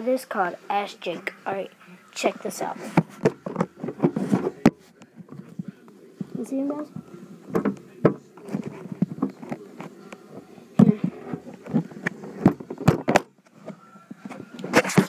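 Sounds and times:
phone handling rustling: 0:07.5 - 0:10.5, 0:11.3 - 0:15.0.

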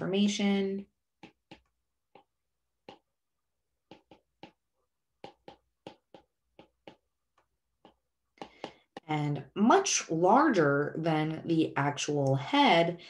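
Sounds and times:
stylus tapping on glass screen: 0:01.2 - 0:03.1, 0:03.8 - 0:09.2.

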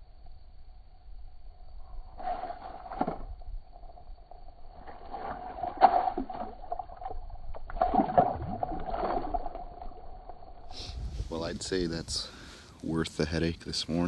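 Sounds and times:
water sloshing and splashing: 0:02.3 - 0:10.6.

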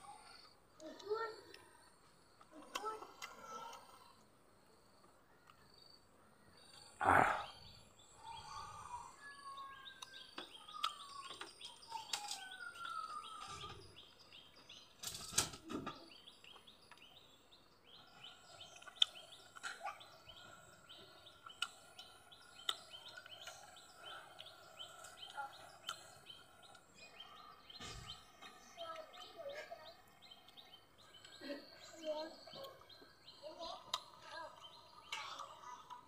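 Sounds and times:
small birds chirping: 0:00.0 - 0:36.0
gliding whistled bird calls: 0:07.1 - 0:14.4.

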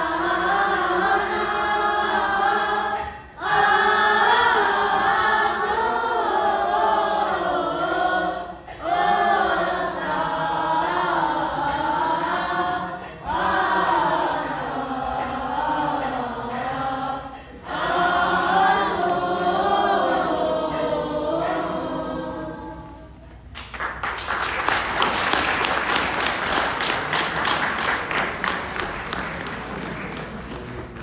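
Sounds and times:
children's choir singing: 0:00.0 - 0:31.0
audience applauding: 0:23.6 - 0:31.0.

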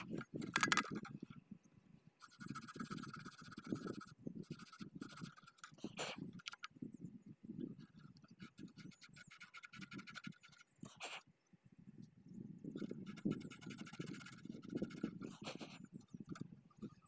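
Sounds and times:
fingers clicking and scraping wires: 0:00.0 - 0:01.2, 0:02.2 - 0:06.8, 0:07.8 - 0:10.8, 0:12.8 - 0:17.0.

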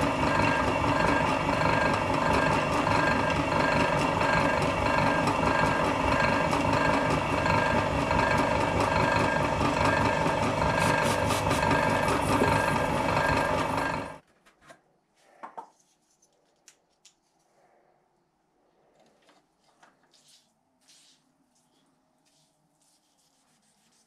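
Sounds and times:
drill press drilling steel: 0:00.0 - 0:14.2
cutting fluid spraying: 0:09.8 - 0:13.7.

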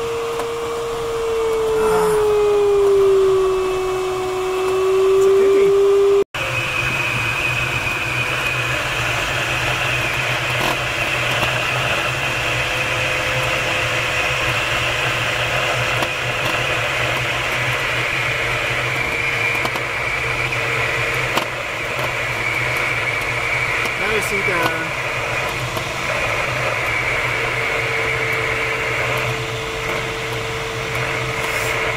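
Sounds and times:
thin steady whistle: 0:01.3 - 0:08.6.

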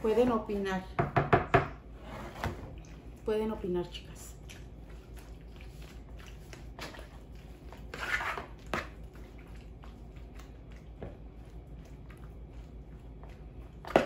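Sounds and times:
spoon stirring wet food: 0:04.4 - 0:14.0
spoon scraping bowl: 0:07.7 - 0:08.6.

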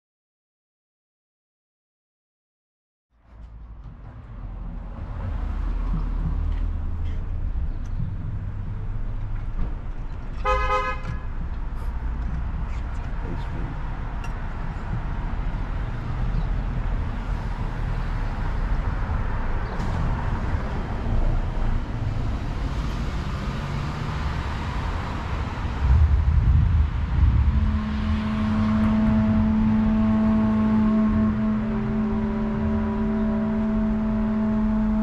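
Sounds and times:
street traffic rumbling: 0:03.1 - 0:35.0
car passing: 0:03.4 - 0:35.0
violin holding a long note: 0:25.7 - 0:35.0.

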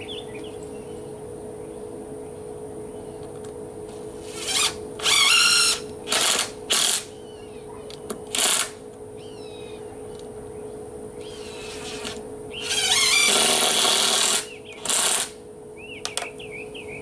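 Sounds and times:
cordless drill driving screws: 0:04.2 - 0:07.0, 0:11.2 - 0:15.4.

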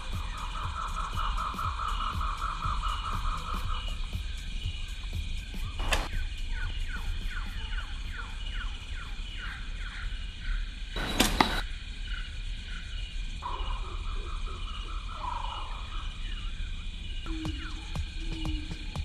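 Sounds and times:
bowstring release and arrow flight: 0:05.6 - 0:06.2, 0:11.0 - 0:11.6.

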